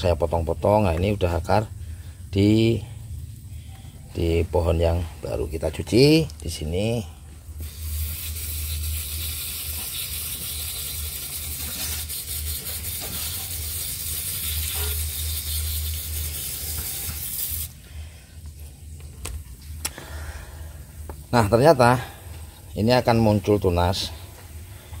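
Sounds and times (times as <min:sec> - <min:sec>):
running water hissing: 0:00.0 - 0:17.8.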